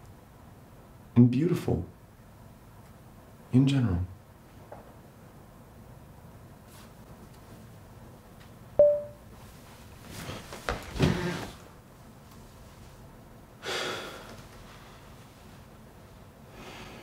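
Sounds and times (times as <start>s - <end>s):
sharp ringing ping: 8.8s - 9.2s.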